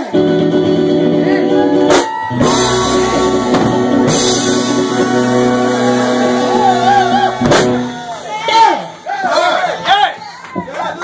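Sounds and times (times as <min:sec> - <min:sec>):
live soul-funk band playing: 0:00.0 - 0:08.3.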